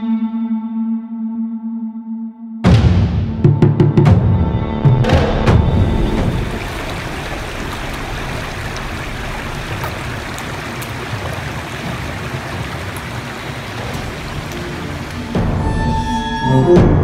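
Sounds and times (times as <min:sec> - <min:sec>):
creek running over rocks: 0:05.6 - 0:15.8.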